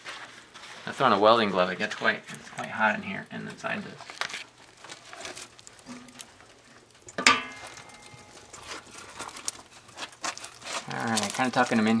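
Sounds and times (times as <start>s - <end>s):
firewood knocking and scraping: 0.0s - 12.0s
wood clanging on metal: 5.2s - 11.9s.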